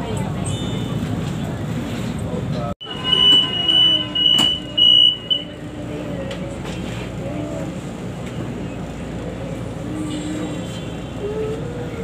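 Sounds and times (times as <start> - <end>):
train carriage low rumble: 0.0 - 12.0
train warning buzzer beeping: 2.8 - 5.6.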